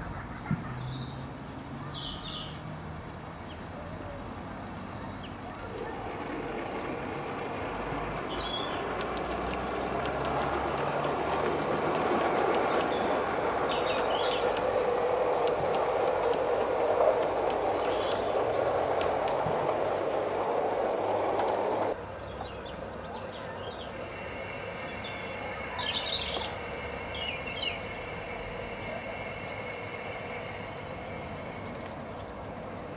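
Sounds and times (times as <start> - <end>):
model train wheels rattling on rail: 5.3 - 22.0.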